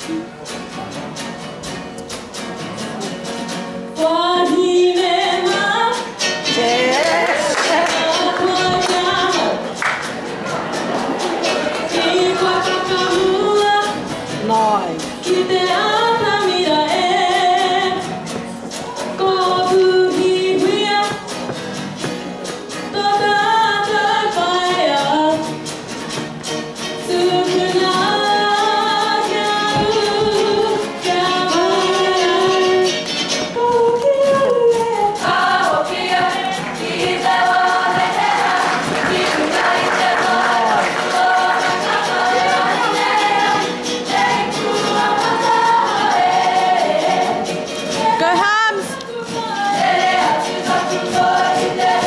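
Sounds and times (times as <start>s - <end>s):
ukuleles: 0.0s - 52.0s
women singing together: 4.0s - 18.1s, 19.0s - 21.3s, 22.9s - 25.5s, 27.0s - 52.0s.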